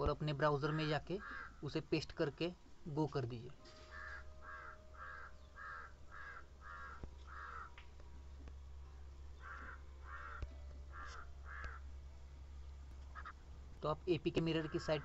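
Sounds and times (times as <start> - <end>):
faint low hum: 0.0 - 15.0
crow cawing: 1.2 - 1.7, 3.8 - 7.8, 9.4 - 11.9, 13.1 - 13.4, 14.6 - 15.0.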